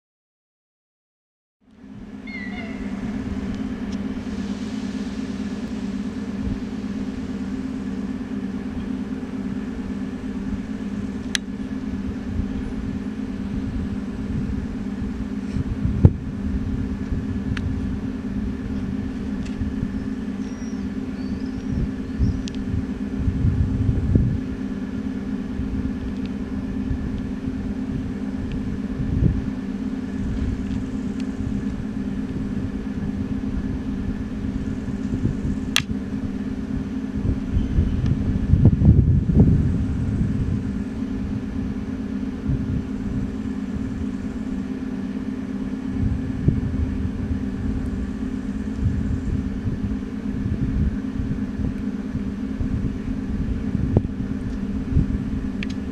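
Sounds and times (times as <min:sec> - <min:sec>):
low mechanical hum: 0:01.6 - 0:55.9
low rumbles: 0:01.6 - 0:55.9
faint bird chirps: 0:02.2 - 0:03.2, 0:19.9 - 0:22.6, 0:37.5 - 0:38.2.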